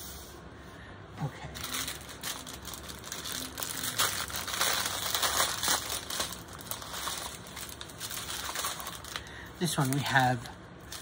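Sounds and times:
plastic bags crinkling: 1.5s - 11.0s.

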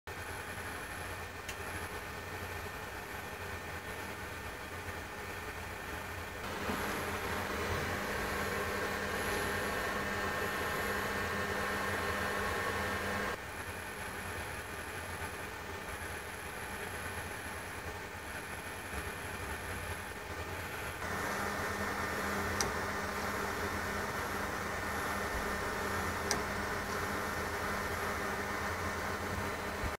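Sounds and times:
electric drive mechanical whine: 5.9s - 29.9s
thin high whine: 6.4s - 13.4s.

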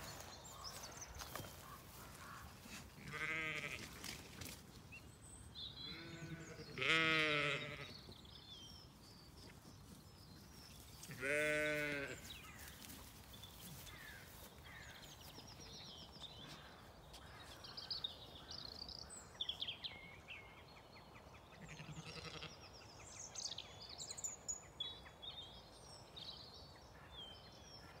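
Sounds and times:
small birds singing: 0.0s - 28.0s
sheep bleating: 3.0s - 3.9s, 5.9s - 7.9s, 11.1s - 12.3s, 21.6s - 22.6s.

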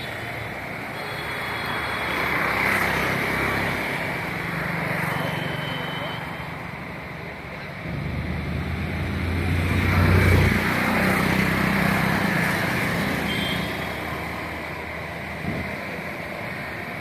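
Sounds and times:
vehicle engine and road noise: 0.0s - 17.0s.

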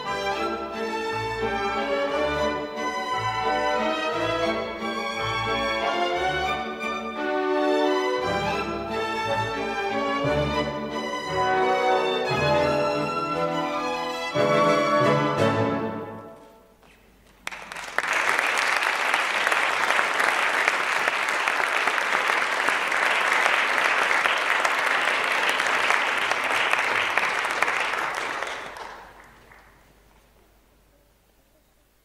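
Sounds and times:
ballet music: 0.0s - 16.8s
audience applauding: 17.2s - 30.4s.

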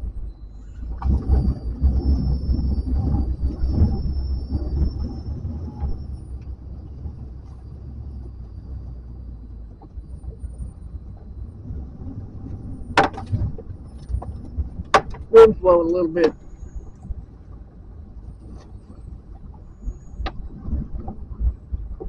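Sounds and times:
wind buffeting microphone: 0.0s - 22.0s
sharp knocks: 13.0s - 13.4s.

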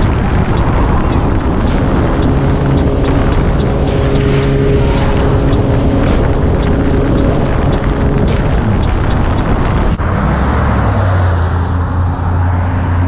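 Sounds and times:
motorcycle engine humming: 0.0s - 10.2s
wind rushing over microphone: 0.0s - 13.0s.

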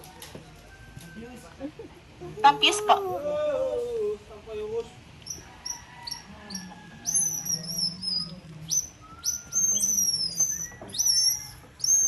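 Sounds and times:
high chirping whistles: 5.2s - 12.0s.

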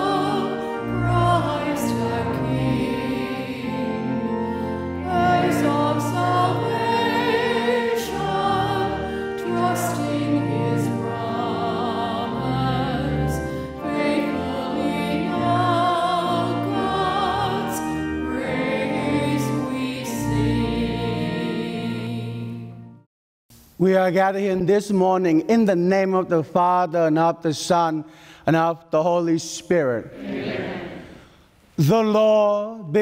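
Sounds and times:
voices singing a hymn: 0.0s - 22.7s, 30.1s - 32.4s
sustained low instrumental chords: 0.0s - 23.0s.

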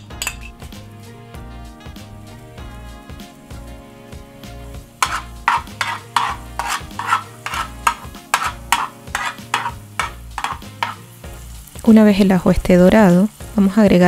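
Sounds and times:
light sizzle: 0.0s - 14.0s
spoon scraping frying pan: 5.0s - 11.2s.

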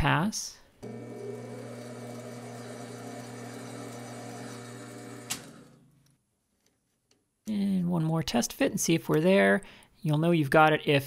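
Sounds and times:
lathe motor hum: 0.8s - 5.9s.

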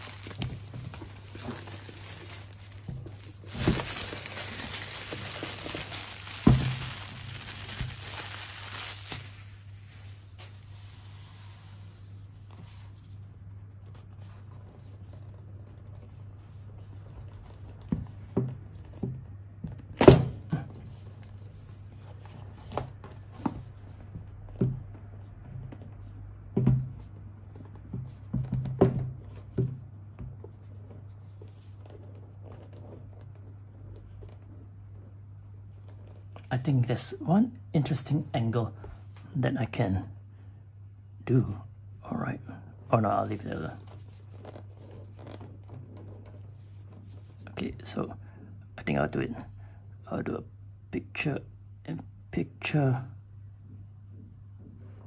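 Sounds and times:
plastic wrap crinkling: 0.0s - 11.1s.

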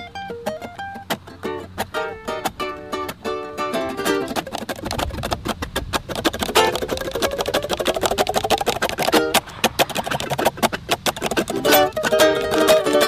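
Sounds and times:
plucked-string tune: 0.0s - 13.0s
sliding held melody line: 0.0s - 13.0s.

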